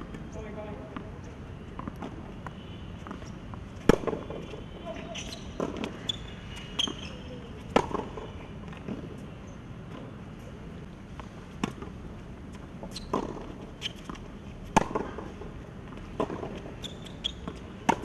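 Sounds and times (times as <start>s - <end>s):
racket striking tennis ball: 3.0s - 4.4s, 7.7s - 8.2s, 13.0s - 15.3s, 16.1s - 18.0s.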